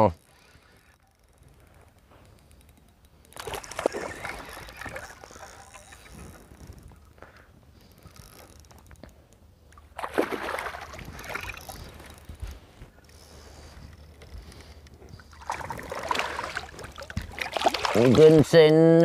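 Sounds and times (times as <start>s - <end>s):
water splashing around boat: 3.4s - 6.9s, 9.8s - 13.7s, 15.2s - 19.0s.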